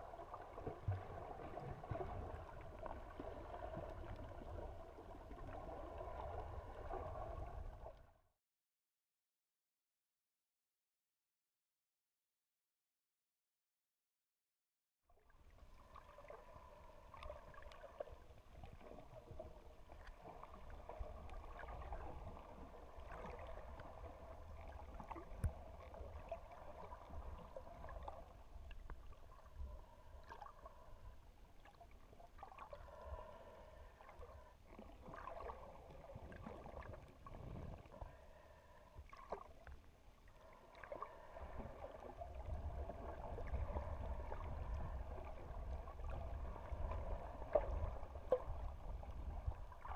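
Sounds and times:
underwater rumble of moving water: 0.0 - 8.2, 15.1 - 49.9
faint clicks and gurgles: 15.2 - 49.9.

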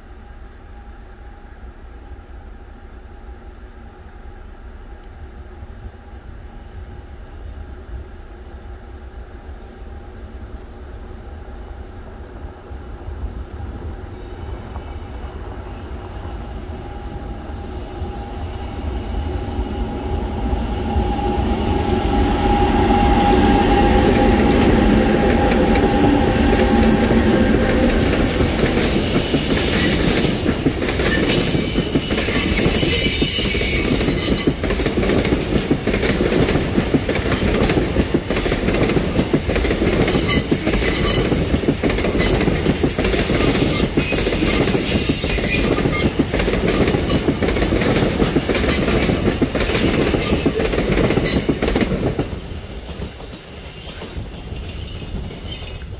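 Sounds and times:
electric locomotives approaching: 0.0 - 55.9
train wheels clicking over rail joints: 21.7 - 55.9.

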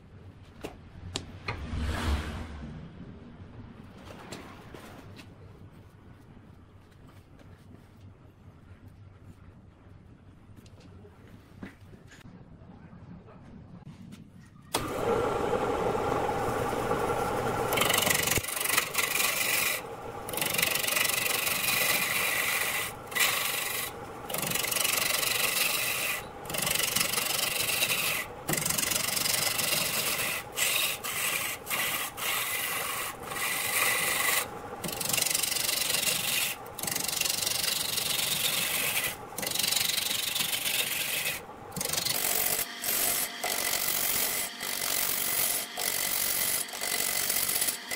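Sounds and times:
wood lathe spinning: 14.7 - 47.9
gouge scraping wood on lathe: 14.8 - 47.9.

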